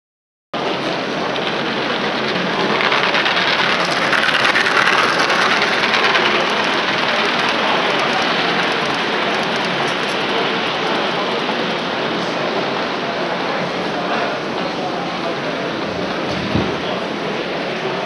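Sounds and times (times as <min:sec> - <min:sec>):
model train wheels clattering: 0:00.6 - 0:12.6.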